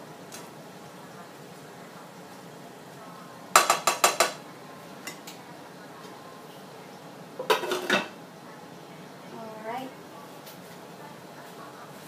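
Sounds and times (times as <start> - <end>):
spatula clanking on a frying pan: 3.5 - 4.4.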